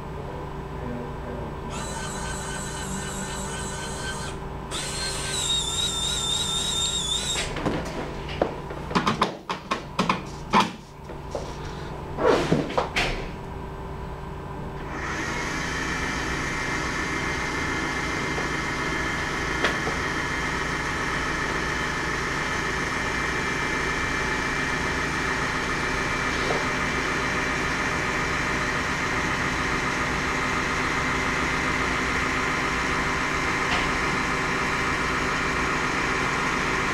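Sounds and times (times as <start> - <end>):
electric actuator motor whine: 1.7 - 7.7.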